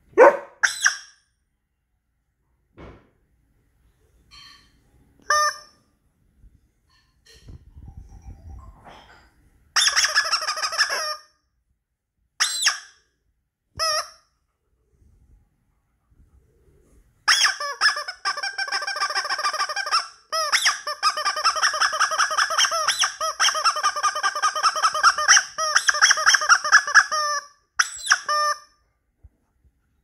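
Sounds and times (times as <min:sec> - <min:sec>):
toy horn squeaking: 0:05.2 - 0:05.8, 0:09.8 - 0:11.3, 0:12.4 - 0:13.0, 0:13.8 - 0:14.3, 0:17.3 - 0:28.8.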